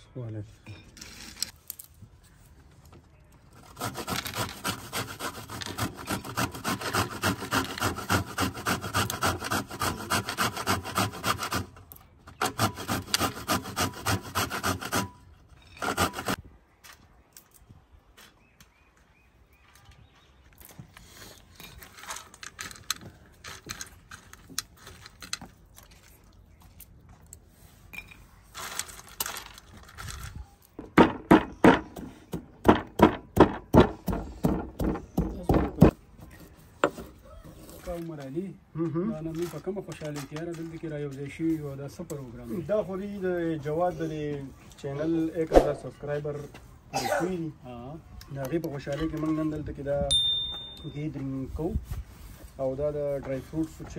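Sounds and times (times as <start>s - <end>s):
pestle grinding in stone mortar: 3.7s - 16.4s.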